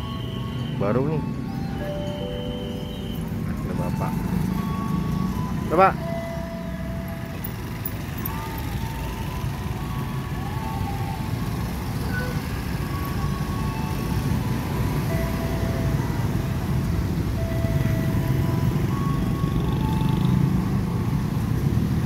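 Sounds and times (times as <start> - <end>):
motorcycles riding past: 17.4 - 22.0.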